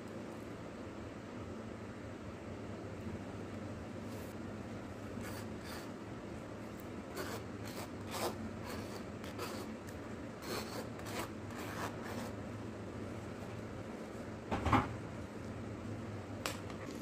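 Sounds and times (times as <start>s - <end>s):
steady low hum: 0.0s - 17.0s
scraping and rubbing strokes: 5.2s - 6.0s, 7.1s - 12.4s.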